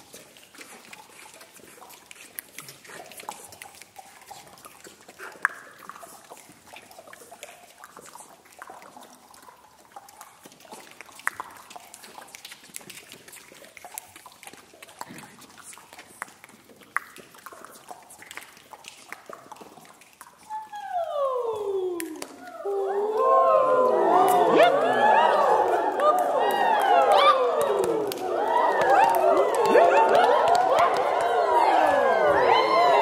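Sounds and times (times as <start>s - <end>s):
tongue clicks and pops: 0.0s - 20.9s, 21.6s - 22.6s
soft vocal glides: 20.5s - 28.6s.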